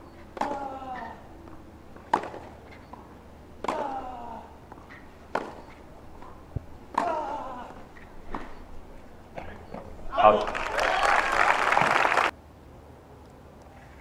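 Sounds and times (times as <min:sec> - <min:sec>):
racket striking tennis ball: 0:00.0 - 0:10.2
player grunting: 0:07.0 - 0:07.8.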